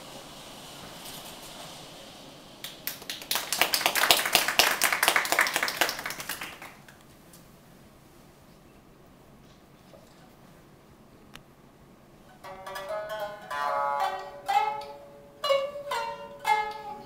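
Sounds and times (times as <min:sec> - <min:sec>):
audience clapping: 0:02.6 - 0:07.0.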